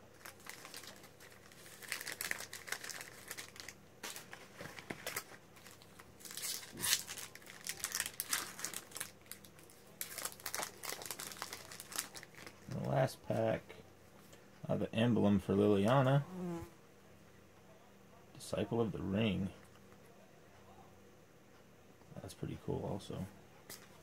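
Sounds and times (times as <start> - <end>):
foil wrapper crinkling: 0.0 - 13.0
foil pack tearing open: 0.1 - 12.8.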